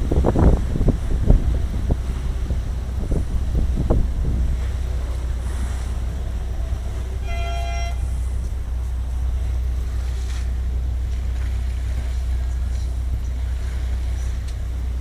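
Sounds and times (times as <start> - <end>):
low rumble of sea: 0.0 - 15.0
wind buffeting microphone: 0.0 - 15.0
short horn toot: 7.2 - 8.2.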